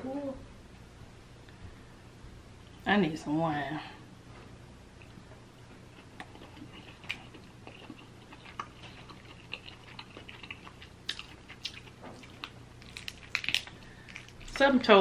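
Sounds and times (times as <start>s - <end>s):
chewing: 5.0s - 14.6s
crab shell snapping: 12.4s - 14.4s.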